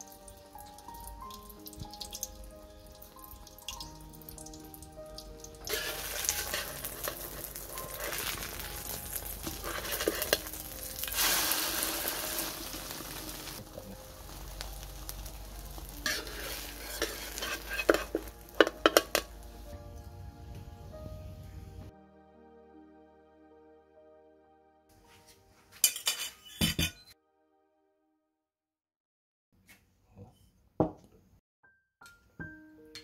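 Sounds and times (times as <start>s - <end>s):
egg sizzling in hot oil: 0.0s - 19.7s
metal spatula scraping wok: 5.7s - 13.6s, 16.0s - 19.3s, 25.8s - 27.1s.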